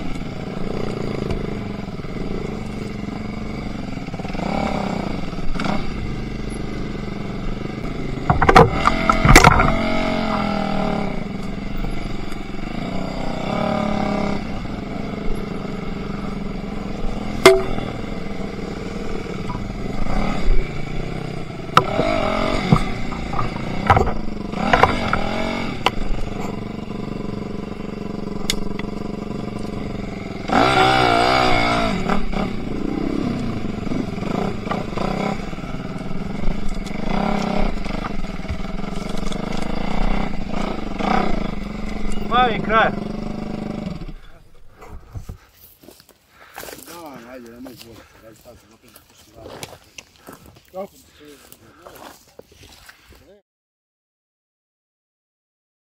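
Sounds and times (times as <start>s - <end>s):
motorcycle engine revving: 0.0s - 50.4s
sharp knocks: 8.2s - 9.9s, 17.4s - 18.1s, 21.7s - 26.0s.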